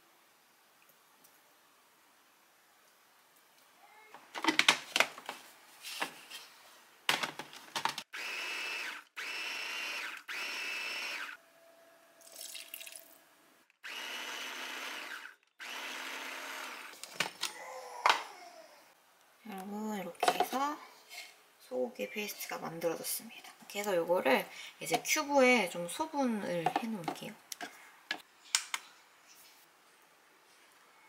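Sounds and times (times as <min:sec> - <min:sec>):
blender pulsing: 0:08.1 - 0:11.4, 0:13.8 - 0:17.0
sharp clicks and knocks: 0:26.6 - 0:28.8.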